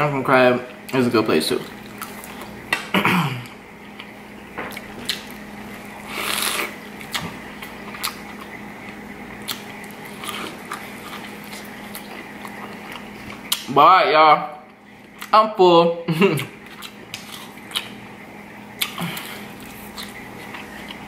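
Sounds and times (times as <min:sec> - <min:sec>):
close-up wet chewing: 0:03.9 - 0:13.7, 0:16.4 - 0:18.0, 0:18.7 - 0:21.0.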